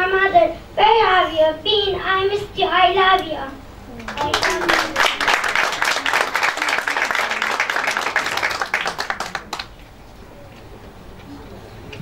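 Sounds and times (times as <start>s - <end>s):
audience applause: 4.0s - 9.8s.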